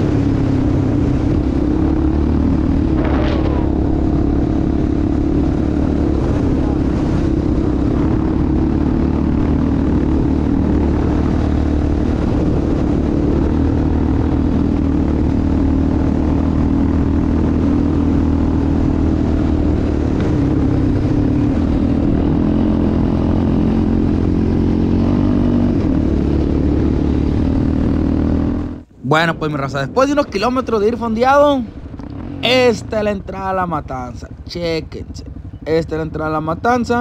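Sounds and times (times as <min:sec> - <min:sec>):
atv engine running: 0:00.0 - 0:29.0, 0:29.8 - 0:37.0.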